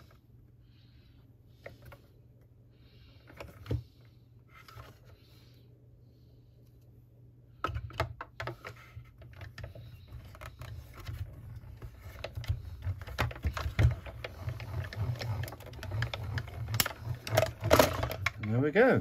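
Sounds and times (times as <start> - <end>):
plastic plates sliding: 8.4 - 18.6.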